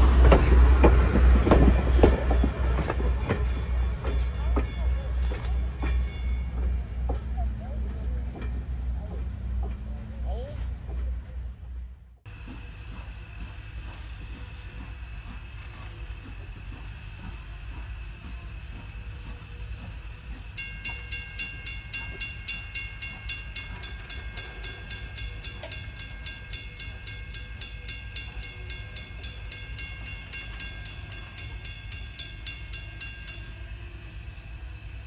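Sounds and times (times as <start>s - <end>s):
crossing warning bell ringing: 0.0s - 9.1s, 20.5s - 35.0s.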